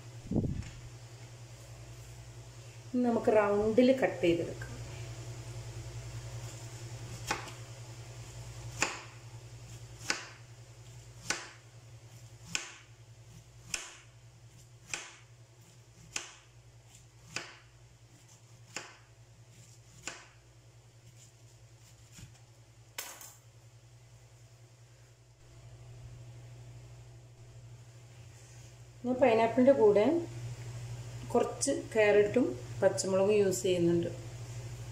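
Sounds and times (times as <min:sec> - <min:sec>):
knife slicing pineapple: 0:06.3 - 0:07.6, 0:08.3 - 0:12.9, 0:13.5 - 0:20.4, 0:21.0 - 0:22.4.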